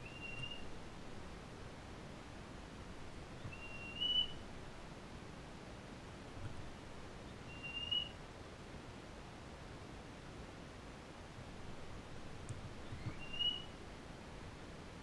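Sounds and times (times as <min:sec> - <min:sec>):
bird whistled calls: 0:00.0 - 0:00.7, 0:03.4 - 0:04.4, 0:07.4 - 0:08.2, 0:12.8 - 0:13.8
steady hiss: 0:00.0 - 0:15.0.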